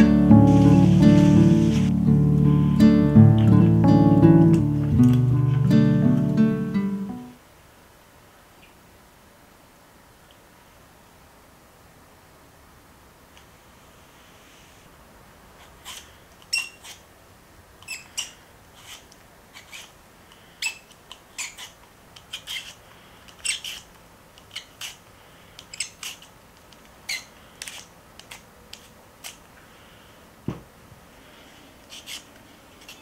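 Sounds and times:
peeler scraping potato: 0:15.6 - 0:17.0, 0:17.8 - 0:20.0, 0:20.6 - 0:29.4, 0:31.8 - 0:33.0.

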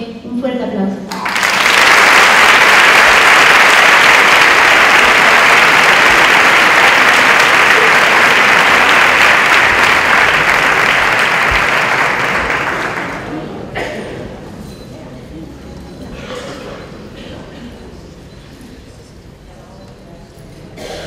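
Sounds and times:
large crowd applauding: 0:01.1 - 0:13.5.

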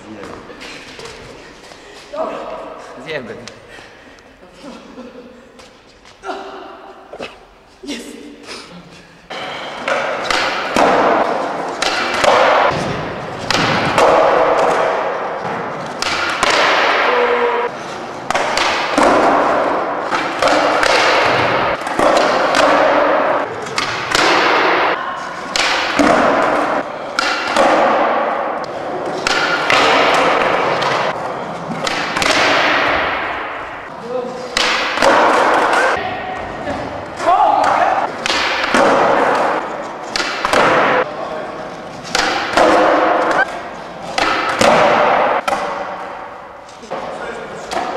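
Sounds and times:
skateboard knocks and landings: 0:18.2 - 0:24.9, 0:38.2 - 0:41.0, 0:42.1 - 0:45.8.

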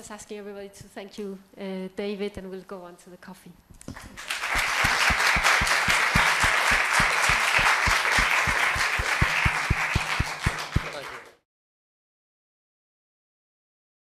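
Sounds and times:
steady beat of loud claps: 0:03.8 - 0:11.4
audience applauding: 0:03.9 - 0:11.4.

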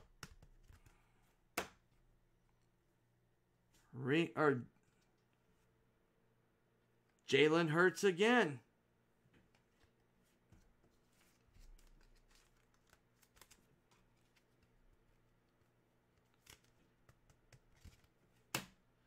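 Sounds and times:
trading cards rustling and clicking: 0:10.8 - 0:15.0, 0:16.1 - 0:18.7.

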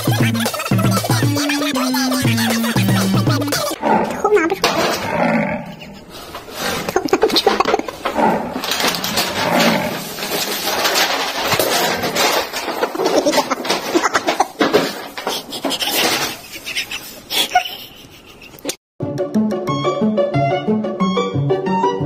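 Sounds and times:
paper bag rustling and crinkling: 0:06.2 - 0:16.4.

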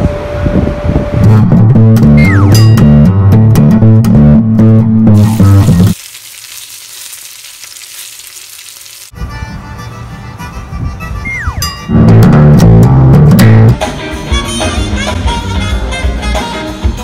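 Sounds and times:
bass and guitar music: 0:01.2 - 0:06.0, 0:09.1 - 0:17.0
fillets sizzling in a frying pan: 0:05.2 - 0:09.1.

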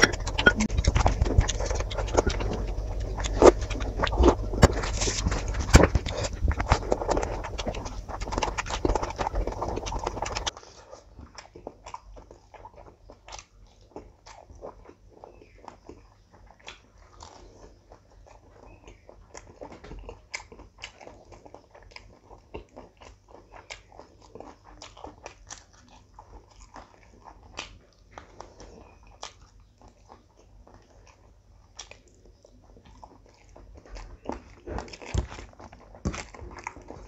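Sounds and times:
mouth clicks: 0:00.0 - 0:10.5
chewing with lip smacks: 0:00.0 - 0:37.0.

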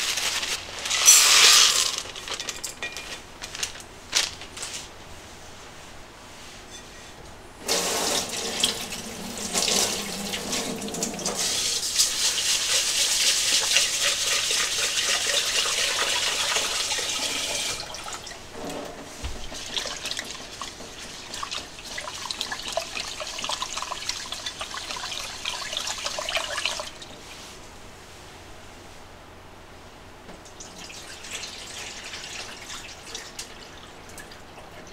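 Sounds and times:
tap water running into pot: 0:07.6 - 0:18.3, 0:19.3 - 0:27.0, 0:30.5 - 0:34.9.

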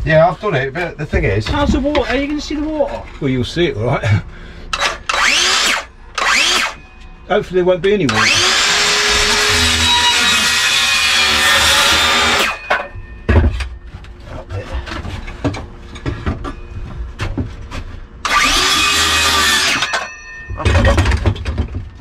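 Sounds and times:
circular saw cutting wood: 0:04.8 - 0:06.8, 0:08.1 - 0:12.8, 0:18.2 - 0:20.2
knocks and thumps: 0:12.7 - 0:17.9, 0:20.5 - 0:22.0.

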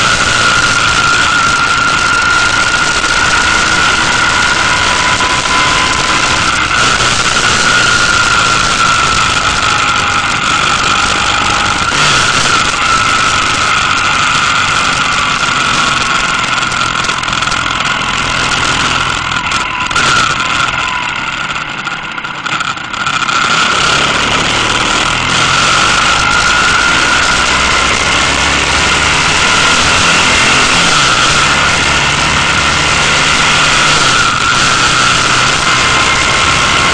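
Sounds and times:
wind rushing over microphone: 0:00.0 - 0:21.9, 0:23.3 - 0:36.9
motorcycle engine running: 0:00.0 - 0:36.9.

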